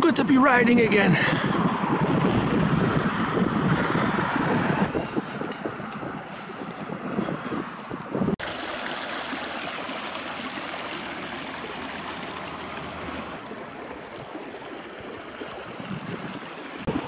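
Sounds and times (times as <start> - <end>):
stream splashing over a drop: 8.4 - 17.0.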